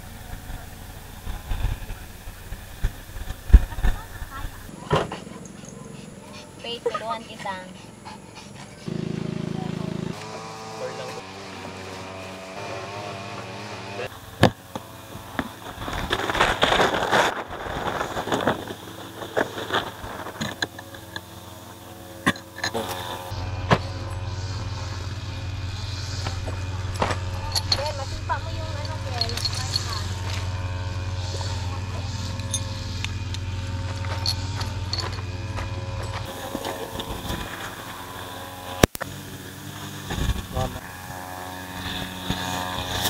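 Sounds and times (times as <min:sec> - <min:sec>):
grass cutter running: 0:00.0 - 0:04.8, 0:08.6 - 0:43.0
plastic tarp crinkling and rustling: 0:15.5 - 0:20.4.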